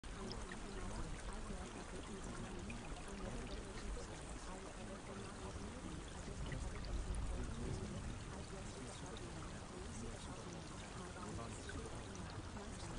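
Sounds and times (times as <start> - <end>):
running water: 0.0 - 12.9.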